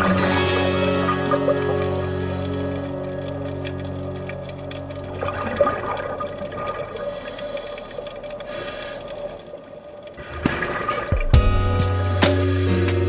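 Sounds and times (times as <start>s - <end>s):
soft sustained synth tones: 0.0s - 10.3s.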